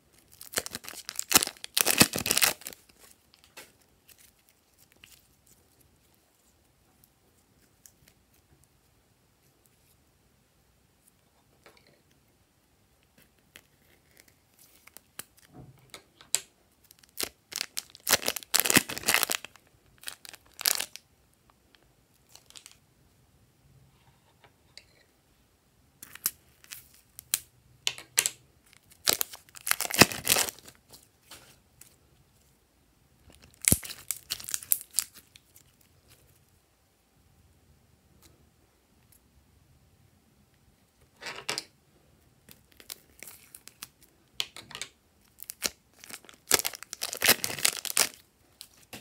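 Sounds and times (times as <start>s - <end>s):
plastic piping bags crinkling: 0.1s - 6.5s, 16.8s - 21.0s, 22.2s - 22.8s, 28.6s - 32.0s, 33.3s - 36.4s, 42.5s - 44.2s, 45.2s - 49.0s
hand working slime crackling: 0.1s - 8.8s, 16.8s - 21.0s, 28.7s - 32.0s, 33.3s - 36.2s, 45.2s - 49.0s.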